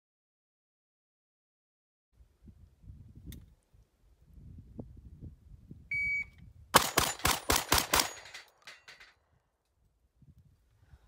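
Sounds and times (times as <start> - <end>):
shot timer beep: 5.9 - 6.3
shotgun shots: 6.8 - 8.6.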